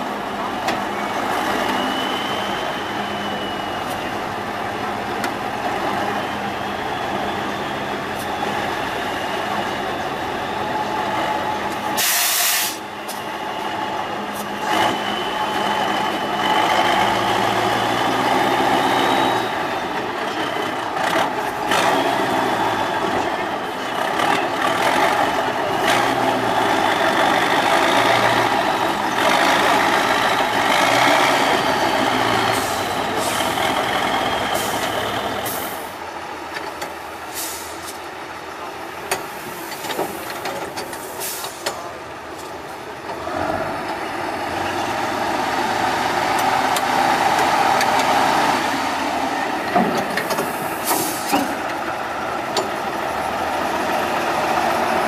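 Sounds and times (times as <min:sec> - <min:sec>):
truck diesel engines under load: 0:00.0 - 0:55.0
short high hisses: 0:12.0 - 0:12.8.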